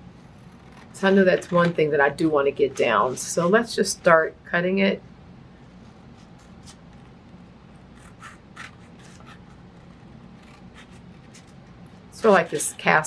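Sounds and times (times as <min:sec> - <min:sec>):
scissors cutting paper: 0:00.4 - 0:03.9, 0:06.1 - 0:07.2, 0:07.8 - 0:13.0.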